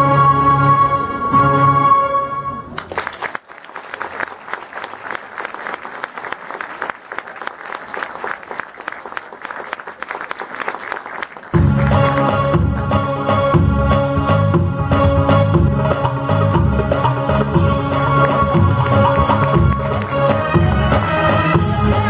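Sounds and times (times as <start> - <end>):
music: 0.0 - 2.7, 11.6 - 22.0
audience applauding: 2.7 - 12.9, 17.7 - 22.0.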